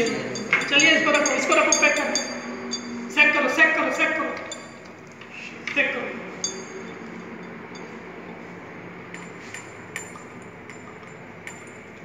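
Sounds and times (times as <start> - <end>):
glass test tubes clinking: 0.0 - 3.1, 4.4 - 5.2, 6.4 - 8.0, 9.1 - 12.0
steady low hum: 0.0 - 12.0.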